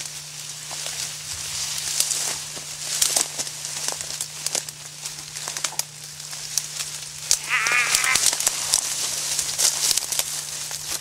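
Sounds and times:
twigs crackling and rustling: 0.0 - 11.0
short wavering bleat-like call: 7.4 - 8.4.

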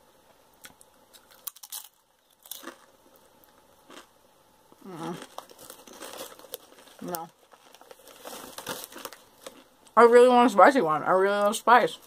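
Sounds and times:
chewing crunchy tortilla chip: 0.6 - 4.1, 4.7 - 10.0.

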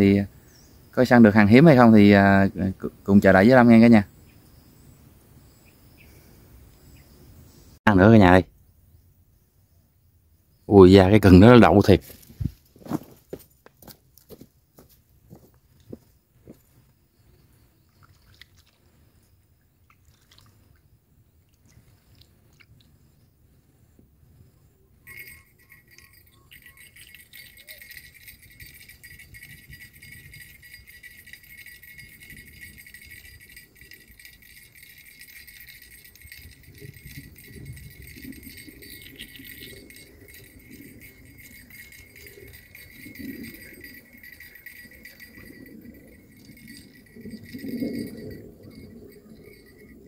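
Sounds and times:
fishing reel winding: 25.1 - 45.6.

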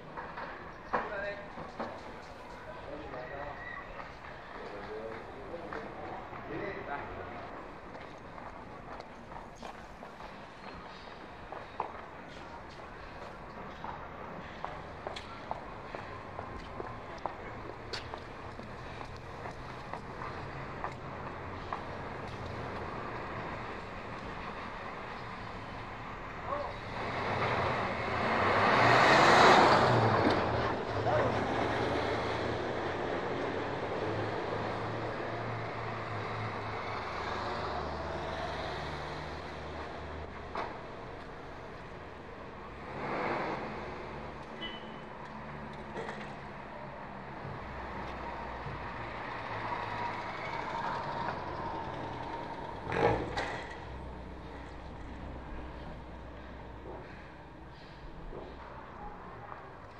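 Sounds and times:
street traffic hum: 0.0 - 59.9
vehicle passing: 2.6 - 59.9
vehicle passing close by: 18.3 - 40.4, 42.5 - 44.5
brief high squeak: 44.6 - 45.0.

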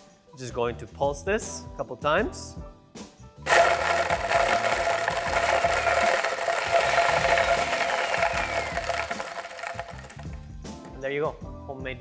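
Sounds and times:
blender grinding bread: 3.5 - 10.4.

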